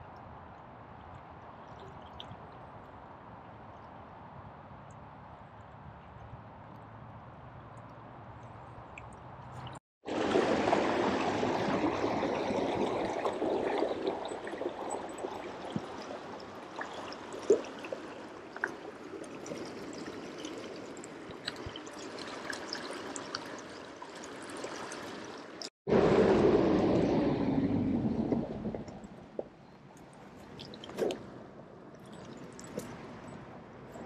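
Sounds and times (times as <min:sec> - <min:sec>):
stream running over rocks: 0:09.0 - 0:26.2.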